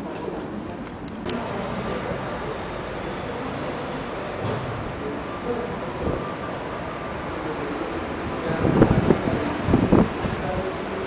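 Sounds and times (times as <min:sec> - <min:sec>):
wind buffeting microphone: 0:08.2 - 0:10.8.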